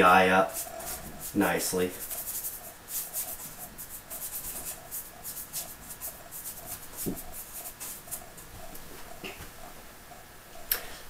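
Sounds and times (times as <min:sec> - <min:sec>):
bristle brush scrubbing paint: 0:00.1 - 0:08.5.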